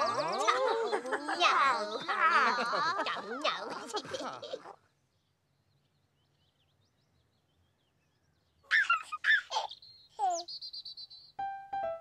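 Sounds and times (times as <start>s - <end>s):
baby giggling: 0.0s - 4.8s, 8.7s - 10.4s.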